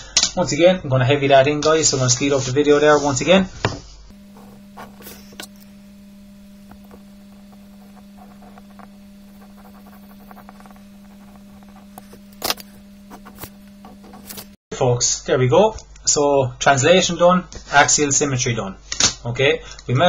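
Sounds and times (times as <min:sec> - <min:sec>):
pen scratching on paper: 0:04.1 - 0:14.6
steady low hum: 0:04.1 - 0:14.6.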